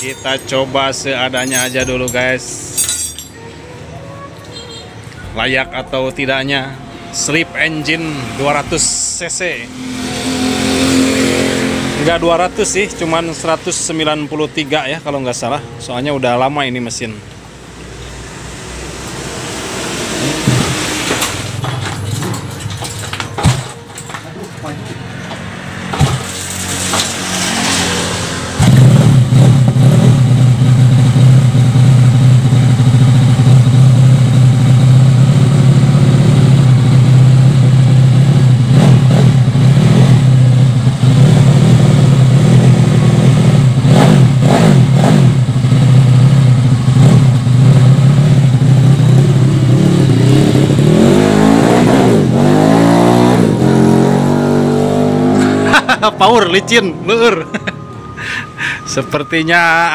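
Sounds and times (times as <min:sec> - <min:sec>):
motorcycle engine running and revving: 0:09.6 - 0:13.9, 0:18.8 - 0:21.6, 0:25.2 - 0:56.0.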